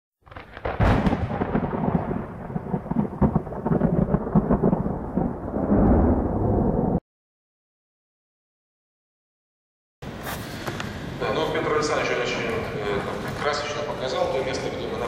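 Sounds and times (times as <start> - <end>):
thunder crack and rolling rumble: 0.3 - 7.0.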